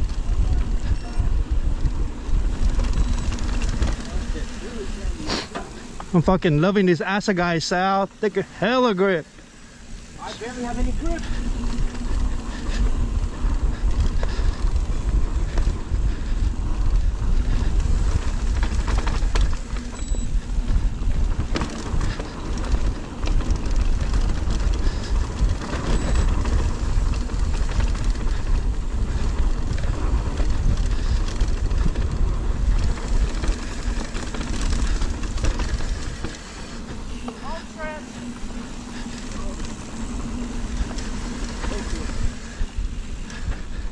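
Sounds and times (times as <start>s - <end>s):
wind noise on microphone: 0.0s - 5.5s, 10.8s - 37.3s
bike knocking and rattling: 0.0s - 7.4s, 9.3s - 43.9s
bike tyres on dirt: 0.0s - 43.9s.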